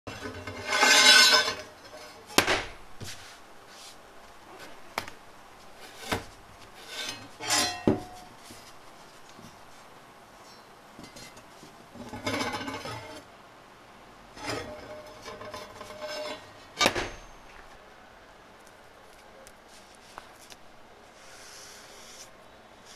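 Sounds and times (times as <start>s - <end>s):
metal blade scraping on bench: 0.1s - 2.3s, 6.8s - 8.3s, 14.4s - 17.2s.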